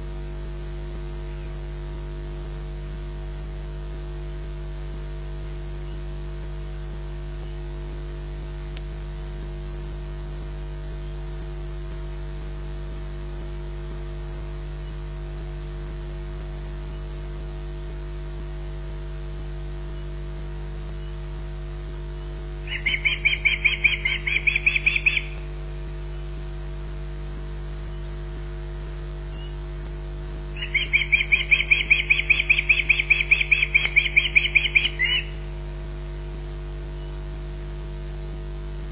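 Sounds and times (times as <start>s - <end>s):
electrical mains hum: 0.0s - 38.9s
osprey alarm calls: 22.6s - 25.6s, 30.5s - 35.6s.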